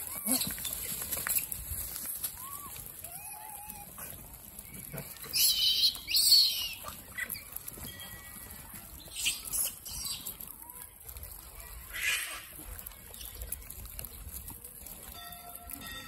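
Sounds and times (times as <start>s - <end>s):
monkeys screeching: 5.3s - 7.6s, 11.9s - 12.5s.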